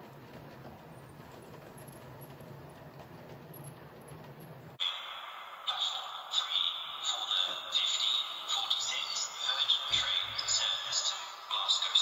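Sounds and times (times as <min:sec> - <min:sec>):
wheels clicking on track: 0:00.0 - 0:04.8.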